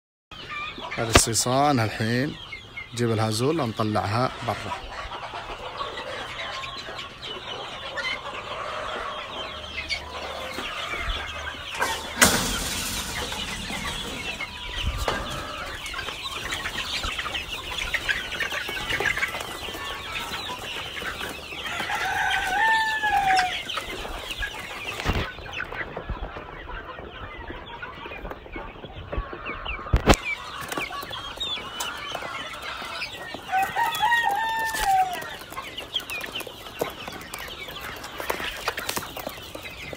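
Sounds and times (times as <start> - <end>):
chickens clucking: 0.3 - 39.9
rising and falling chicken calls: 4.7 - 18.2, 21.3 - 24.3, 31.9 - 35.5
sharp knocks: 11.8 - 15.6.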